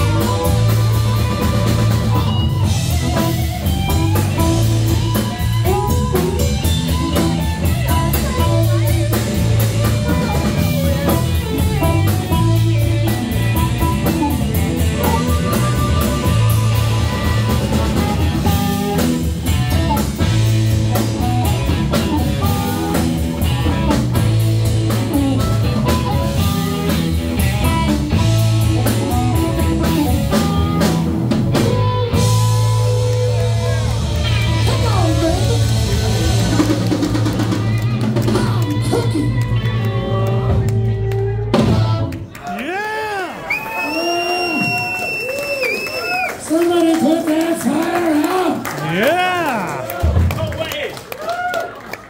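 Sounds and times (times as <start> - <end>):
harmonica: 0.0 - 26.8
drum kit: 0.0 - 42.8, 48.8 - 50.7
bass guitar: 0.0 - 43.3, 44.0 - 51.8
electric guitar: 0.0 - 43.3.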